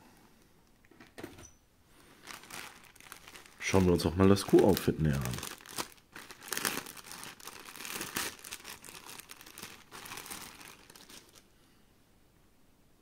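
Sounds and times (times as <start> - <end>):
packaging crinkling: 2.0 - 11.5.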